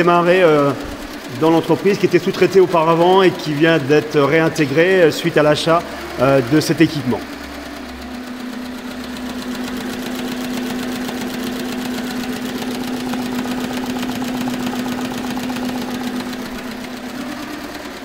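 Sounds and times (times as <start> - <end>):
motor hum: 0.0 - 18.0.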